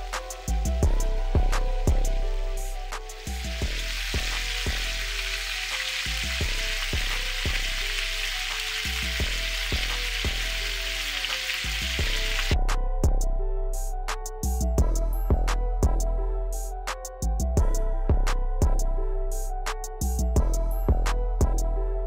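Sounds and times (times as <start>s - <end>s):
background music with steady beat: 0.0s - 22.0s
meat sizzling in a skillet: 1.8s - 12.6s.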